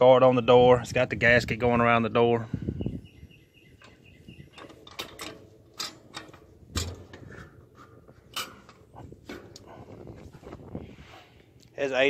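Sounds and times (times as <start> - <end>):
metal latch clicks and knocks: 3.8 - 7.3, 8.3 - 9.7.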